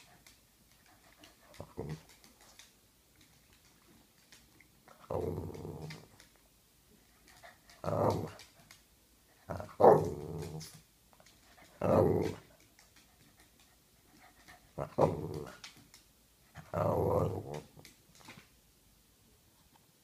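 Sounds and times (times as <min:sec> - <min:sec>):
dog growling: 0:01.4 - 0:02.2, 0:04.9 - 0:06.2, 0:07.4 - 0:08.5, 0:09.5 - 0:10.8, 0:11.6 - 0:12.5, 0:14.7 - 0:15.7, 0:16.6 - 0:17.8.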